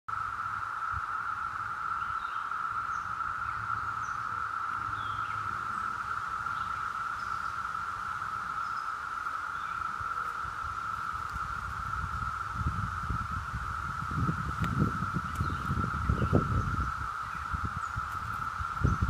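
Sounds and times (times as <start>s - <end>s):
cicadas buzzing: 0.1s - 19.0s.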